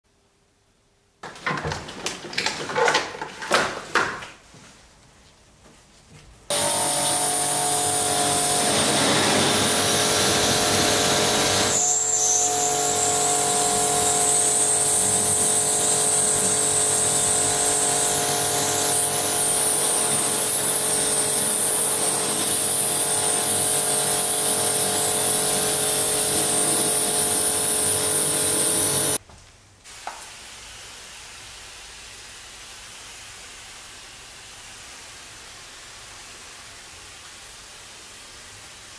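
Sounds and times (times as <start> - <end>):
pressure washer motor humming: 6.5 - 11.8, 12.5 - 29.2
high-pressure water jet hissing: 6.5 - 29.2.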